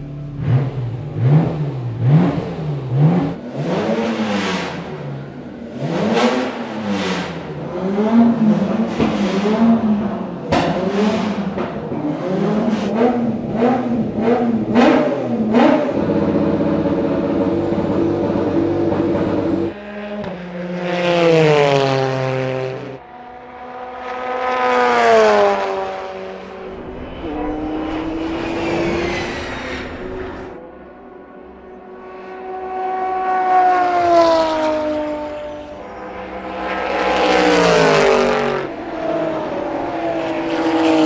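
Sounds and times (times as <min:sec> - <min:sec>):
race car engine revving: 0:00.0 - 0:30.6.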